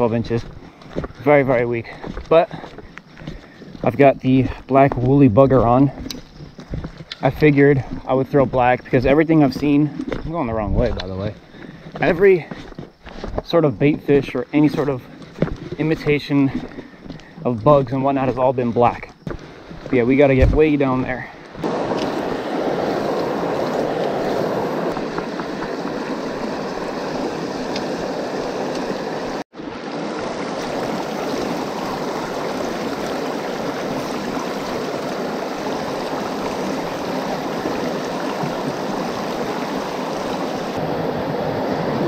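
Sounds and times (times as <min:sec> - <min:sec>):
river water rushing over rocks: 0:21.6 - 0:42.0.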